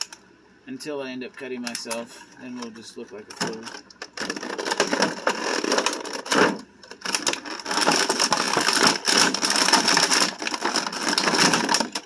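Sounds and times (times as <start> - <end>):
plastic packaging crinkling: 2.6 - 12.0.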